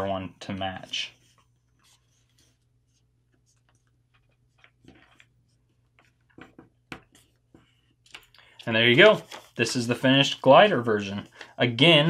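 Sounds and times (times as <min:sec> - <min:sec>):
paper rustling and crinkling: 0:08.0 - 0:11.9.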